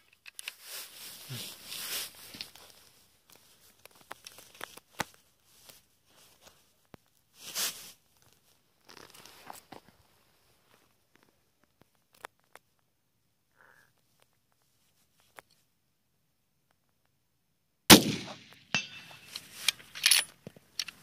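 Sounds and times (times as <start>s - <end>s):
rustling handling noise: 0.0s - 12.8s, 18.8s - 21.0s.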